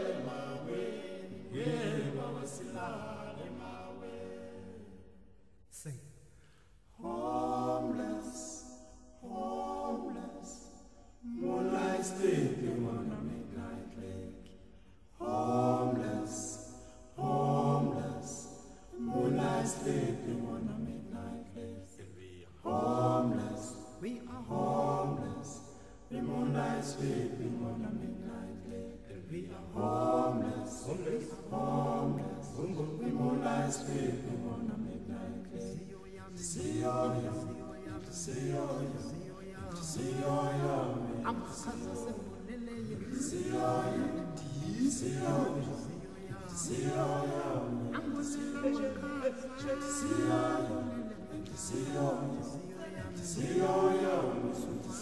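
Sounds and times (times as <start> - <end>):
singing voices music: 0.0 - 55.0.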